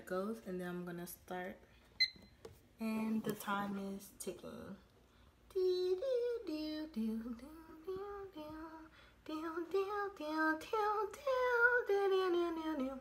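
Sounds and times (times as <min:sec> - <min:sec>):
girl singing unaccompanied: 0:05.5 - 0:13.0.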